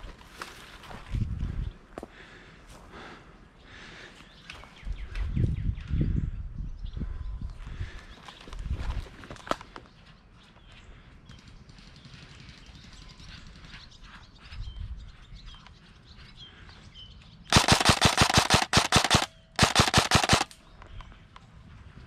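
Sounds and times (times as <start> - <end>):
airsoft rifle full-auto bursts: 17.5 - 20.6.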